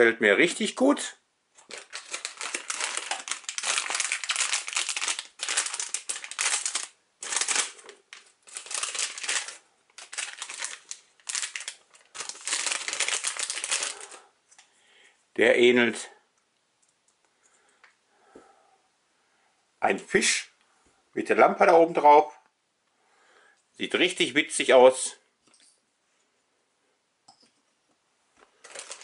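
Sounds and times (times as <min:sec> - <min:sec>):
foil bag crinkling: 0:01.6 - 0:14.3, 0:28.5 - 0:29.0.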